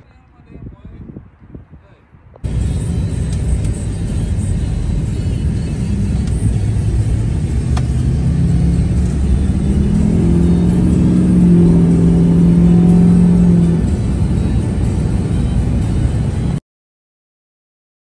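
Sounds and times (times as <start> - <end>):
road and wind noise: 0.0 - 16.6
truck engine: 2.4 - 16.6.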